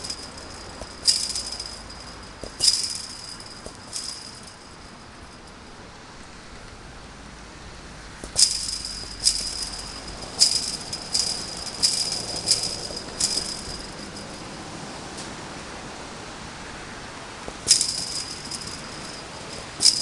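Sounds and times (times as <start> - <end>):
chain-link fence rattling when kicked: 0.0 - 5.5, 8.2 - 14.6, 17.5 - 20.0.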